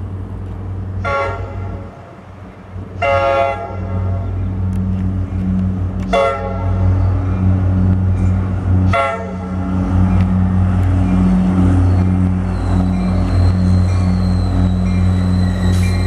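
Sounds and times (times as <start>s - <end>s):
diesel engine drone: 0.0s - 16.0s
locomotive horn blasts: 1.0s - 2.0s, 3.0s - 7.1s, 8.8s - 9.6s.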